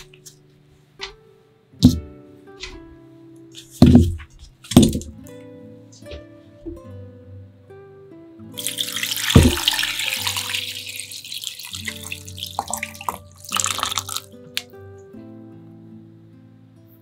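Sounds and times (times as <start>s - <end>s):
background music: 0.0s - 17.0s
water pouring and splashing into pot: 8.6s - 14.6s.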